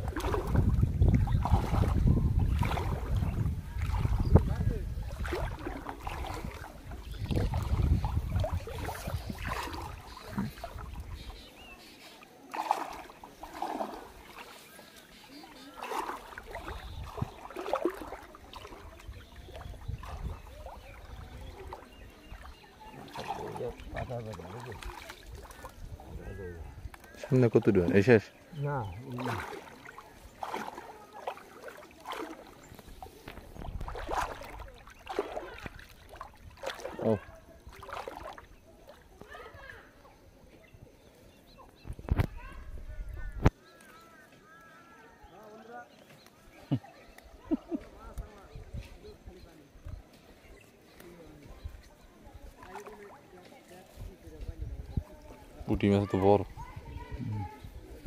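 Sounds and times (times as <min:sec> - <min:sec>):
wind rumble on microphone: 0:00.0 - 0:11.2, 0:18.8 - 0:22.4, 0:33.2 - 0:34.8, 0:41.8 - 0:43.5, 0:54.0 - 0:55.6, 0:56.4 - 0:58.0
water splashing and sloshing: 0:00.0 - 0:58.0.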